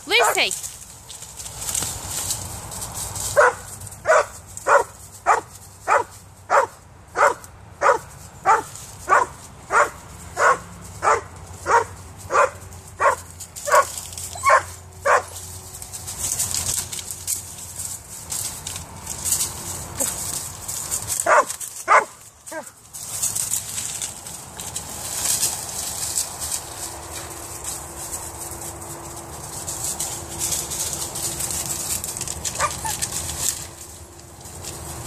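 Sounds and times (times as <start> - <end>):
dog barking: 3.4 - 15.3, 21.2 - 22.7.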